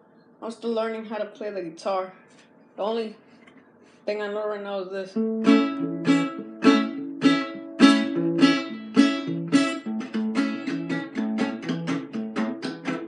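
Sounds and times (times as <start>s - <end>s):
acoustic guitar strumming: 5.1s - 13.0s.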